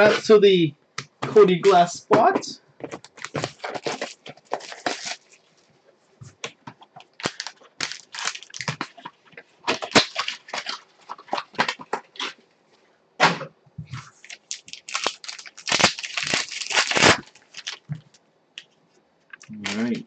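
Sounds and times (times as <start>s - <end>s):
cardboard and foil crackling: 2.8s - 5.6s, 7.0s - 12.4s, 14.1s - 18.1s, 19.4s - 20.0s.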